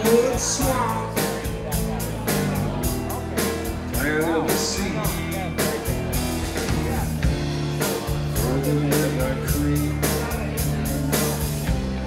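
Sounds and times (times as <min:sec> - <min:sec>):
drum kit: 0:00.0 - 0:12.0
electric bass: 0:00.0 - 0:12.0.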